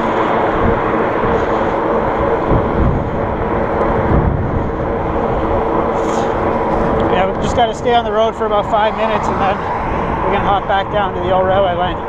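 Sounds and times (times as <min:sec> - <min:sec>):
bike tyres humming on asphalt: 0:00.0 - 0:12.0
wind rush on microphone: 0:00.0 - 0:12.0.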